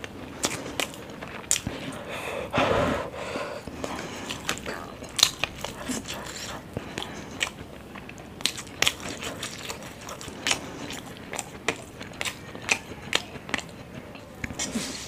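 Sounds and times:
person chewing food: 0.0 - 15.0
wet mouth clicks and crunches: 3.8 - 15.0.

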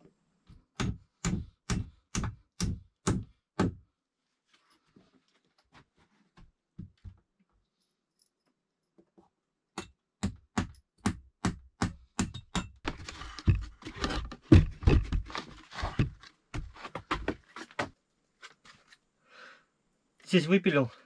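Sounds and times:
hand saw cutting wood: 12.9 - 16.1.

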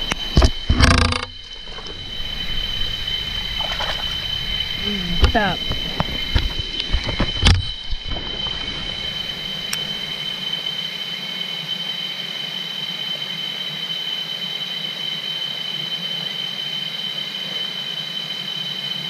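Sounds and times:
sharp click: 0.0 - 1.3
cicadas droning: 0.0 - 19.0.

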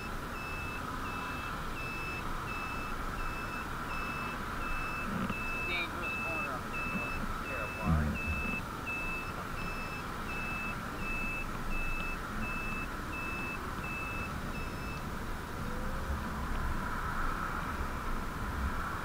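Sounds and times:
turn signal beeping: 0.0 - 15.1
wind and road noise: 0.0 - 19.0.

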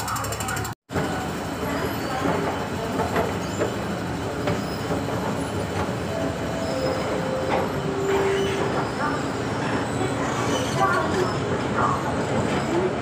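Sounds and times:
train rail rumble: 0.0 - 13.0.

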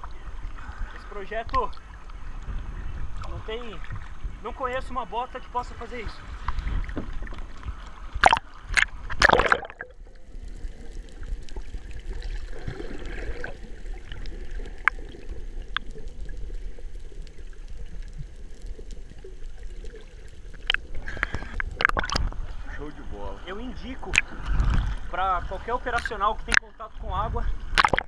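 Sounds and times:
low underwater rumble: 0.0 - 4.9, 5.5 - 28.0
water sloshing and splashing: 5.6 - 28.0
faint clicks: 14.1 - 22.3.

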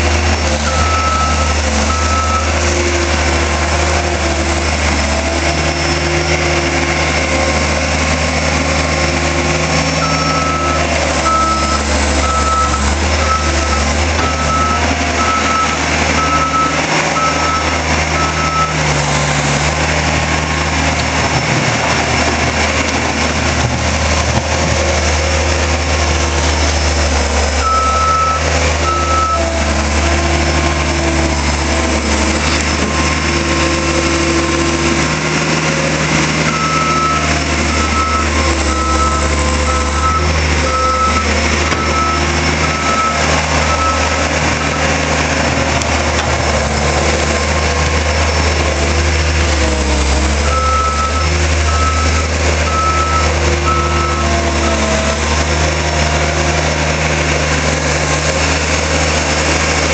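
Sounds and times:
diesel engine running: 0.0 - 59.9
backup alarm beeping: 10.0 - 18.8.

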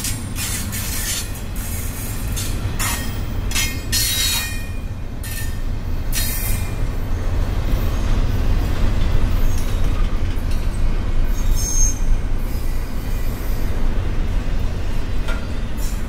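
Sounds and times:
train wheels rumbling on rail: 0.0 - 16.0
high wheel squeal: 11.3 - 13.7.

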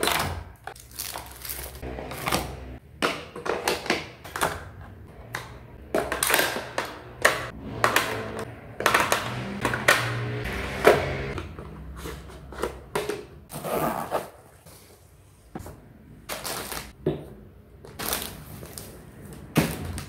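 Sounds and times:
bottles clicking and knocking: 2.1 - 10.2.

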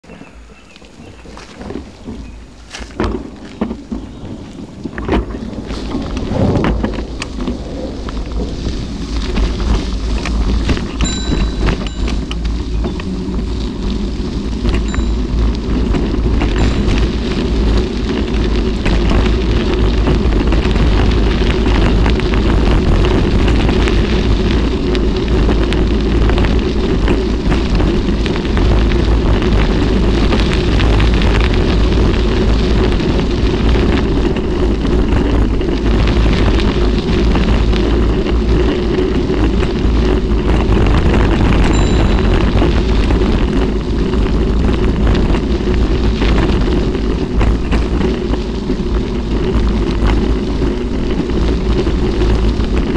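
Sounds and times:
bike tyres rolling on gravel: 0.0 - 52.9
wind buffeting microphone: 0.0 - 52.9.

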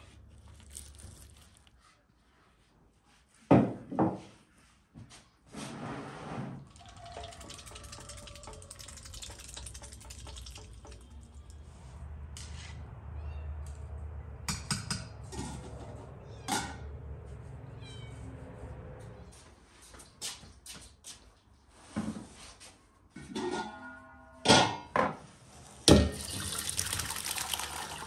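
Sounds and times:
water splashing and dripping: 6.6 - 12.0, 26.0 - 28.0.

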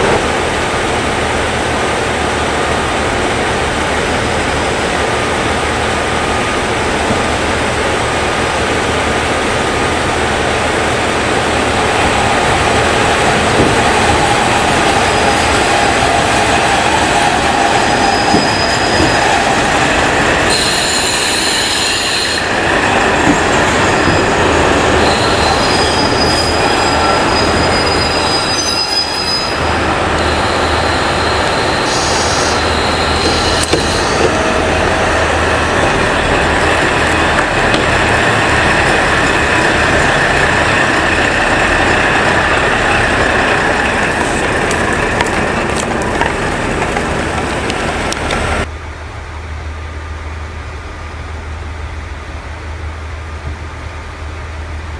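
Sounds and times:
diesel train engine: 0.0 - 54.9
rail noise rumble: 0.0 - 54.9
high-pitched wheel squeals: 17.8 - 19.6, 25.0 - 29.6, 30.2 - 35.4.

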